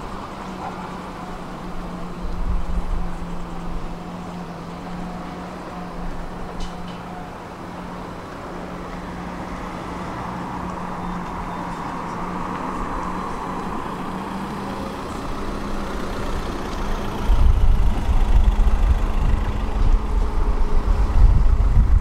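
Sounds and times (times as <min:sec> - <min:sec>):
traffic engine hum: 0:00.0 - 0:22.0.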